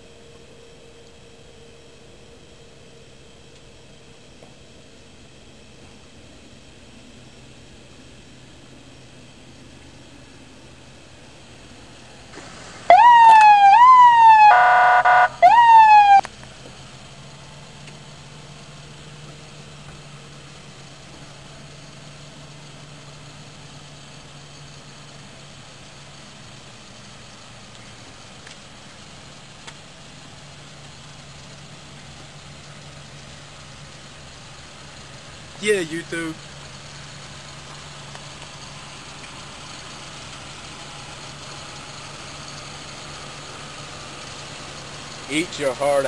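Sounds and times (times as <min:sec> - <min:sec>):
truck engine idling: 0:00.0 - 0:46.0
electronic siren sweeping: 0:12.9 - 0:16.3
harsh buzzing horn: 0:13.0 - 0:16.2.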